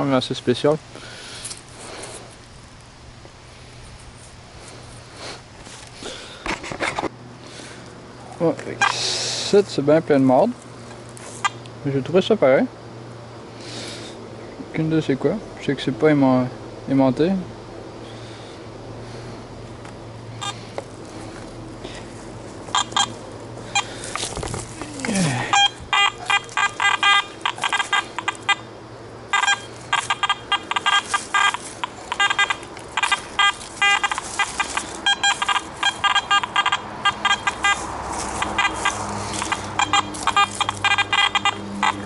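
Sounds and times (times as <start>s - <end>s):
metal detector beeps: 8.8s - 9.0s, 20.4s - 20.6s, 22.7s - 42.0s.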